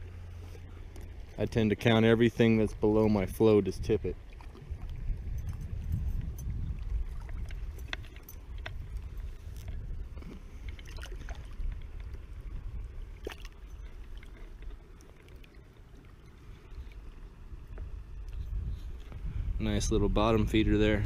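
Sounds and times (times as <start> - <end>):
wind buffeting the microphone: 1.1 - 14.8, 16.6 - 21.0
small splashes of a fish: 10.6 - 11.7, 13.1 - 15.6.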